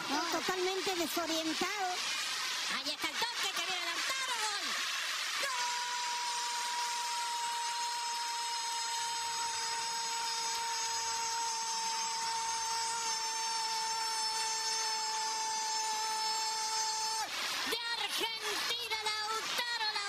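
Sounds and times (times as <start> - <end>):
stadium crowd noise: 0.0 - 13.3.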